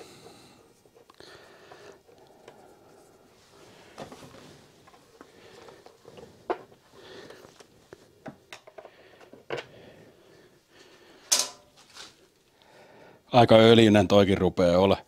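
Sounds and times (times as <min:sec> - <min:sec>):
hand tools clicking and knocking: 0:11.3 - 0:11.7.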